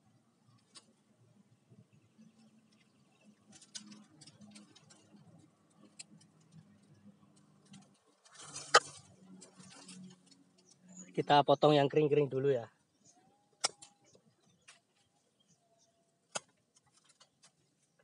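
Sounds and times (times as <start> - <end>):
dry twigs crackling and rustling: 2.2 - 11.2, 13.0 - 18.0
sharp crack: 13.6 - 14.0.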